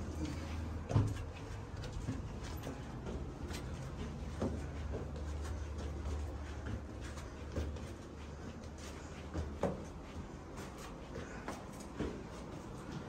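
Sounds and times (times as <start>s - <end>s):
footsteps on brick stairs: 0.0s - 13.0s.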